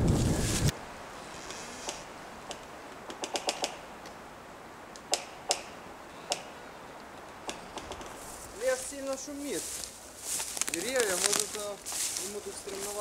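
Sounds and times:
wind in pine tops: 0.0 - 13.0
sharp clicks and ticks: 2.5 - 3.8, 4.9 - 5.7.

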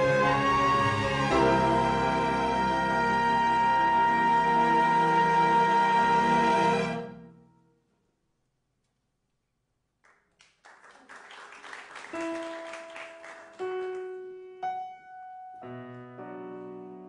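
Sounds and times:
grand piano playing: 0.0 - 7.7, 12.1 - 17.0.

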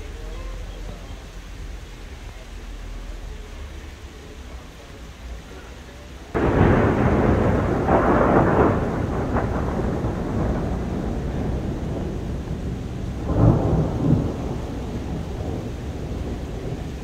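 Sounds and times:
falling rain: 0.0 - 17.0
thunder rumbling: 6.3 - 17.0.

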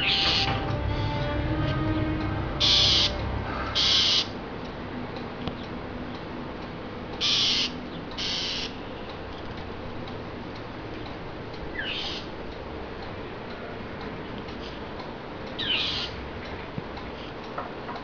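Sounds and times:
starling harsh rasping calls: 0.0 - 0.6, 2.6 - 4.4, 7.2 - 9.1, 11.7 - 12.4, 15.6 - 16.2.

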